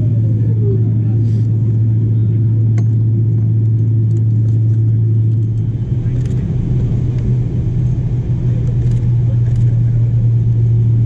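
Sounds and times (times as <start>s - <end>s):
airplane cabin engine hum: 0.0s - 11.0s.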